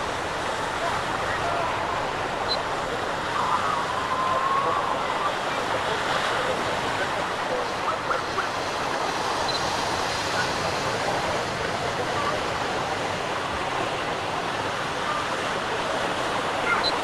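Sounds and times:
distant shouts of bathers: 0.0s - 8.5s
waves breaking on sandy beach: 0.0s - 17.0s.

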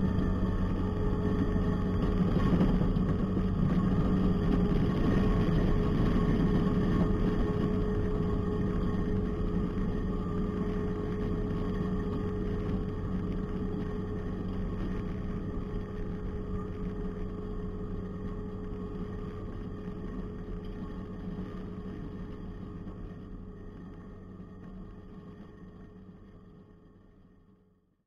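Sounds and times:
diesel engine droning: 0.0s - 21.2s.

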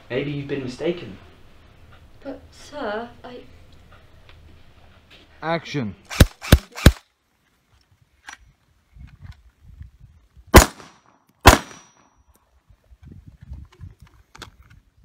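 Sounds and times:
pistol shots: 6.1s - 7.0s, 10.6s - 12.0s
submachine gun shots: 6.1s - 7.0s, 10.6s - 12.0s.

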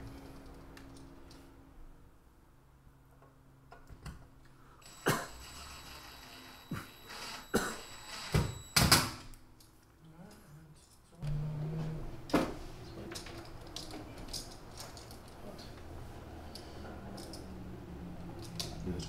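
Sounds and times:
cordless drill whining: 4.8s - 8.9s.

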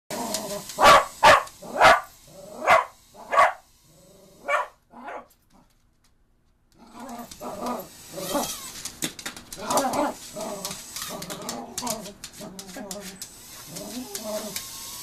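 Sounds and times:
dog barking: 0.8s - 3.6s, 4.4s - 5.3s.

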